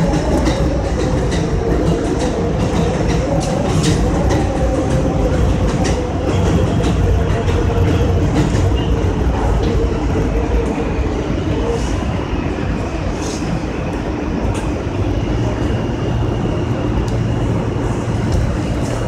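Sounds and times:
wheels clicking over rails: 0.0s - 10.7s
constant hum: 0.0s - 19.0s
train rumble: 0.0s - 19.0s.

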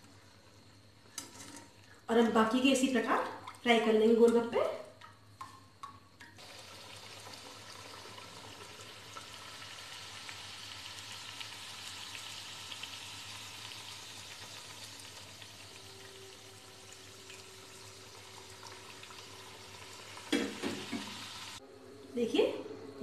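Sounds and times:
dough frying in hot oil: 5.0s - 21.6s.

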